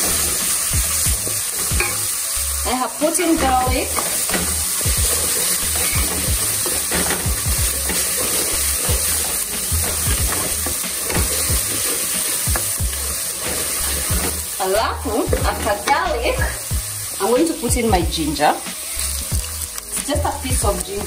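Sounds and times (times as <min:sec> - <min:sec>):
onions sizzling in oil: 0:00.0 - 0:21.0
spatula scraping pot: 0:03.4 - 0:16.6.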